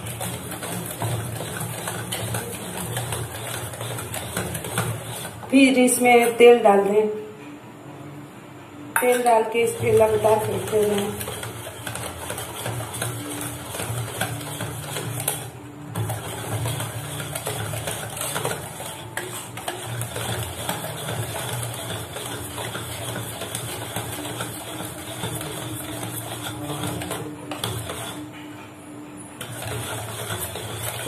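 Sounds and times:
batter beaten in steel bowl: 0.0s - 7.2s, 9.0s - 28.6s, 29.2s - 31.0s.

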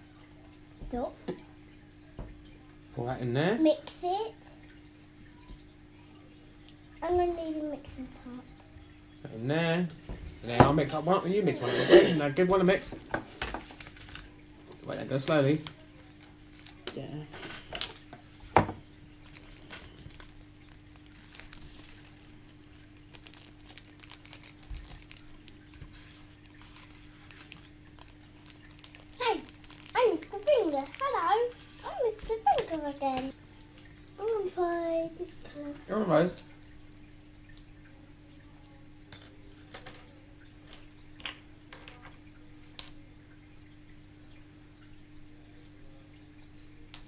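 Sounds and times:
faint steady hum: 0.0s - 47.0s
plastic bag crinkling: 13.6s - 14.4s, 15.5s - 17.1s, 19.2s - 33.2s.

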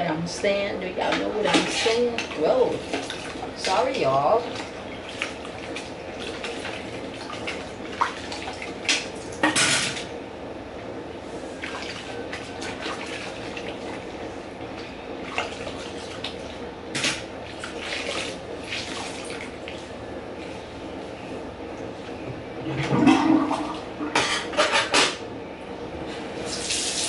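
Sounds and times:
dishes clinking and clattering: 22.8s - 25.2s.

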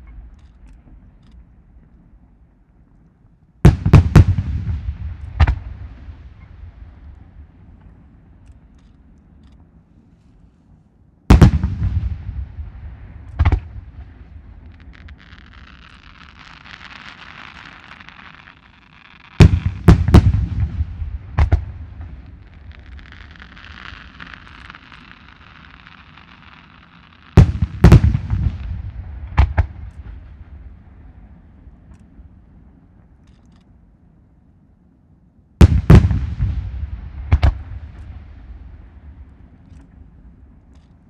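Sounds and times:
firework shells booming: 3.6s - 8.0s, 11.3s - 31.2s, 35.6s - 41.0s
soft hiss: 4.4s - 41.0s.

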